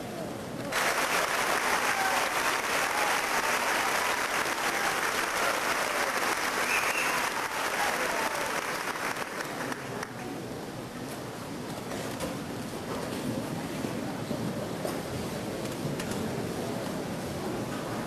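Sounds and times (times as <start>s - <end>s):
large audience applauding: 0.7s - 10.3s.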